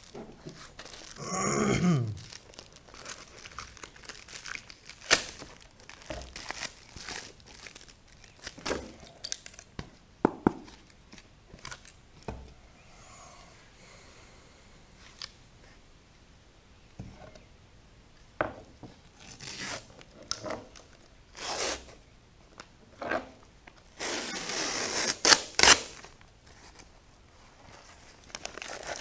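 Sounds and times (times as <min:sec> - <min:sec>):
plastic film crinkling and tearing: 0:00.0 - 0:01.3, 0:02.0 - 0:09.7, 0:19.2 - 0:21.9, 0:24.0 - 0:26.9, 0:27.8 - 0:29.0
sharp cracks of fiberglass: 0:05.0 - 0:06.6.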